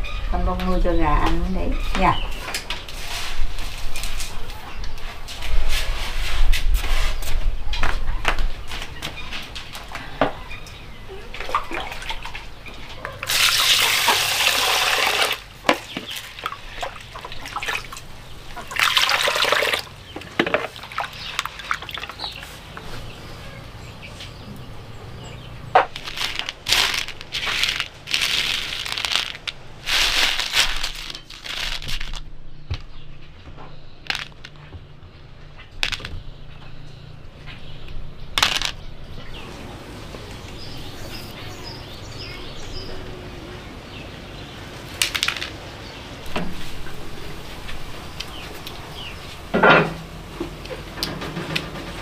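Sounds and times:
water gushing: 13.3 - 15.4, 16.2 - 19.9
dried corn kernels rattling: 25.9 - 32.3, 34.0 - 34.6, 35.8 - 36.1, 38.4 - 38.8.

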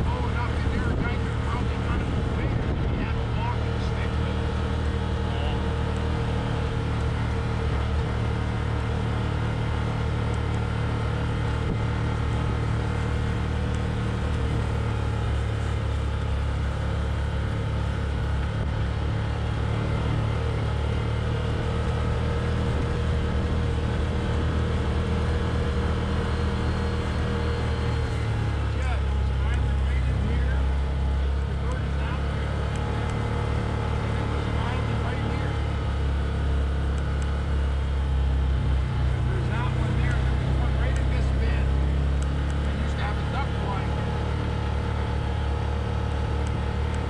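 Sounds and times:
utility vehicle engine droning: 0.0 - 47.0.

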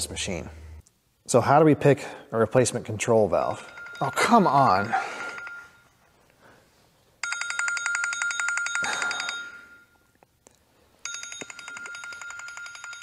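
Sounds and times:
phone ringtone high-pitched ringing: 3.6 - 5.9, 7.2 - 10.0, 11.0 - 13.0.

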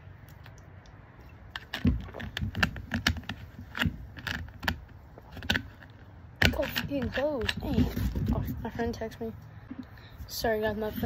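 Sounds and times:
plastic bottle crackling: 1.3 - 8.7.

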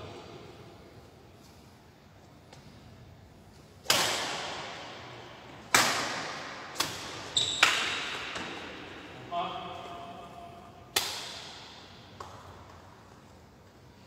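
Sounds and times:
racket hitting shuttlecock: 3.8 - 8.9, 10.9 - 12.8
shoe squeak: 7.3 - 7.8.

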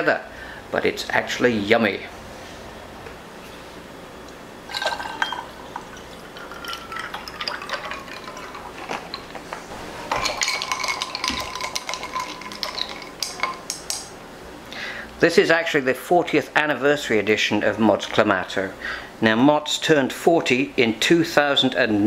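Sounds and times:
ice clinking against glass: 4.7 - 9.4, 10.0 - 14.1
ice cubes crackling: 4.7 - 13.8
juice pouring into a glass: 4.7 - 13.8.

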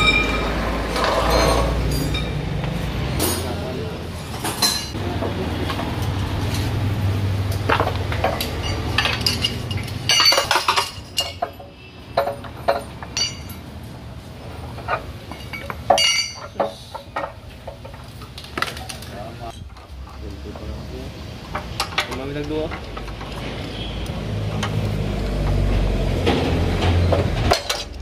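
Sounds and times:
hand tools clinking on metal: 7.6 - 13.9, 14.7 - 20.3.

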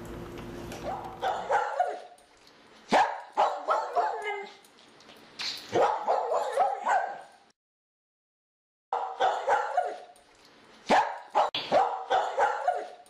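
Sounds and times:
dog barking: 0.8 - 2.2, 2.9 - 4.6, 5.7 - 7.4, 8.9 - 10.2, 10.9 - 13.0.

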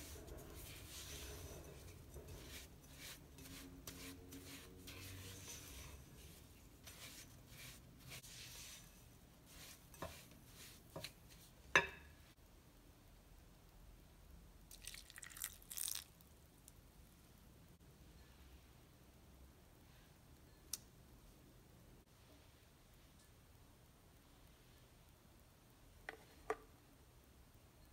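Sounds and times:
spatula scraping dough in glass bowl: 0.0 - 11.5
milk pouring into bowl: 14.7 - 16.3.

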